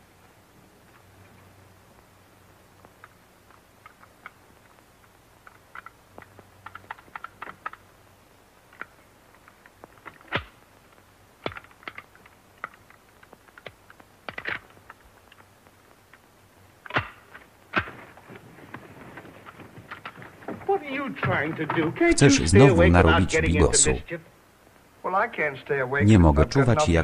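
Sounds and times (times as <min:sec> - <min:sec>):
shotgun handling clicks and taps: 0:08.7 - 0:16.2.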